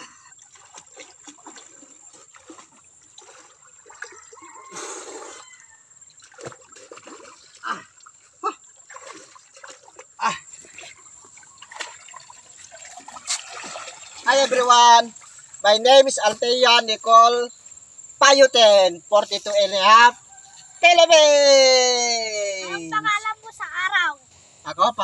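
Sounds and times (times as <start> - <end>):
water splashing and sloshing: 0.0 - 16.8.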